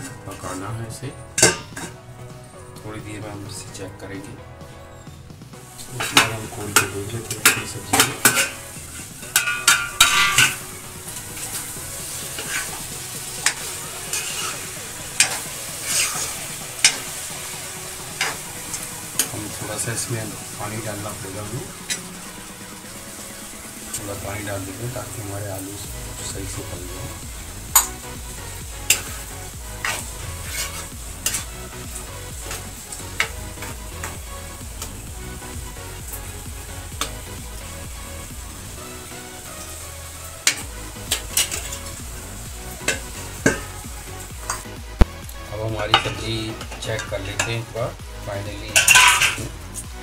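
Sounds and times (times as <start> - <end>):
food sizzling: 0.0 - 50.0
ladle scraping a pan: 1.3 - 2.0, 5.8 - 22.1, 27.7 - 34.4, 39.5 - 42.1, 42.7 - 44.8, 48.7 - 49.6
metal lid clanking: 1.3 - 2.0, 5.9 - 10.7, 13.4 - 17.2, 18.2 - 19.4, 28.9 - 29.2, 40.5 - 41.8, 42.8 - 43.7, 45.9 - 47.6, 48.7 - 49.5
spoon clinking against metal pan: 48.8 - 49.5.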